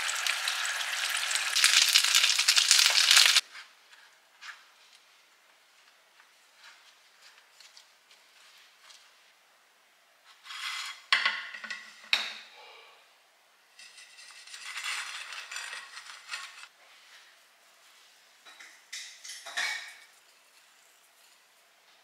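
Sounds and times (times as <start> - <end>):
utensils clinking against dishes: 18.5 - 20.5.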